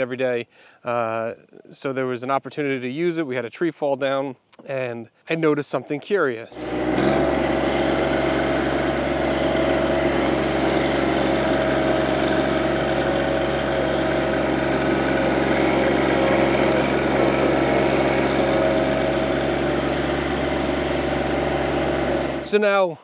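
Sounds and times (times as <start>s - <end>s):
tractor diesel engine running: 6.5s - 22.8s.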